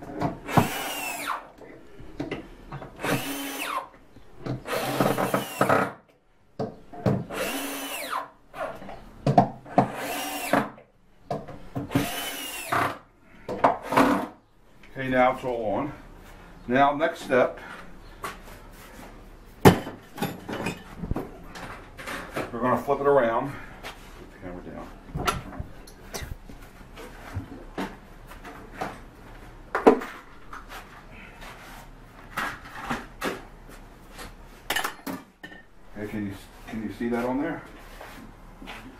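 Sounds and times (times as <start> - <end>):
objects knocking and clunking: 0.0 - 0.8, 1.6 - 3.0, 4.1 - 7.3, 8.7 - 12.1, 12.7 - 14.5, 19.6 - 22.7, 25.1 - 35.8
power drill driving screws: 0.5 - 1.5, 3.0 - 3.9, 4.6 - 6.0, 7.3 - 8.3, 9.8 - 10.8, 11.9 - 13.0.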